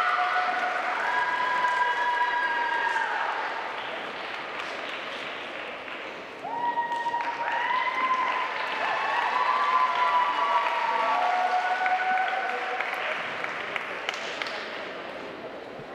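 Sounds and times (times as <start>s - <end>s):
audience cheering and yelling: 0.0s - 3.6s, 6.4s - 12.8s
audience clapping: 0.0s - 15.0s.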